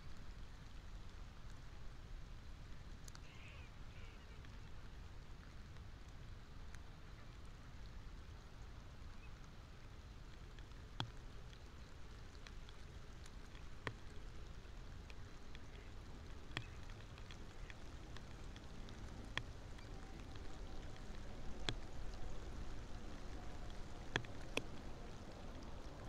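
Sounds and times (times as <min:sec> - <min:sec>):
rain hissing on water: 0:00.0 - 0:26.0
water drop ticks: 0:15.0 - 0:22.2, 0:23.3 - 0:25.6.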